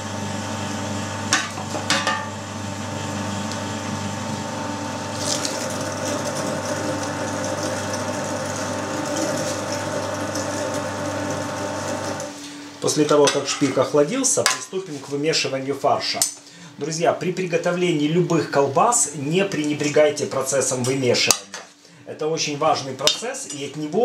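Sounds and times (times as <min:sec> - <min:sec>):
electric meat grinder humming: 0:00.0 - 0:12.5.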